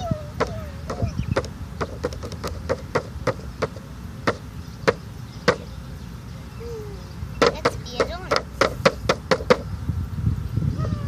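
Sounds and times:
sharp taps and clicks: 0:00.4 - 0:05.6.

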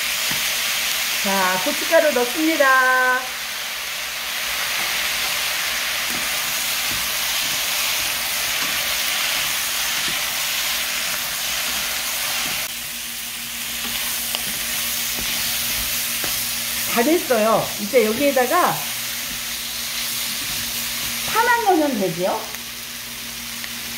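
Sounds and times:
food sizzling in a hot pan: 0:00.0 - 0:23.9
chopsticks tapping: 0:06.0 - 0:10.3, 0:13.8 - 0:19.6.

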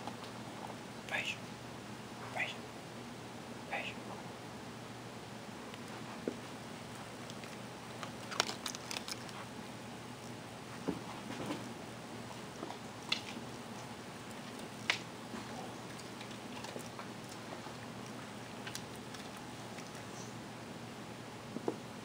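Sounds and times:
low room hum: 0:00.0 - 0:22.0
dog crunching dry food: 0:05.8 - 0:09.5, 0:12.6 - 0:20.2.

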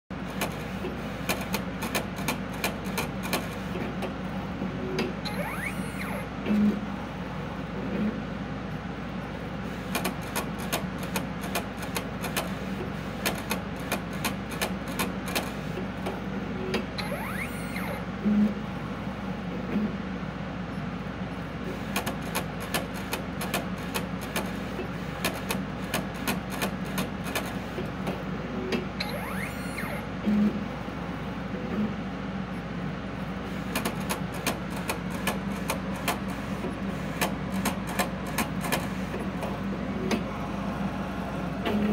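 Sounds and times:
printer motor hum: 0:00.1 - 0:41.9
rapid ticking of print mechanism: 0:00.2 - 0:04.4, 0:09.6 - 0:18.1, 0:21.6 - 0:28.3, 0:33.4 - 0:40.4.

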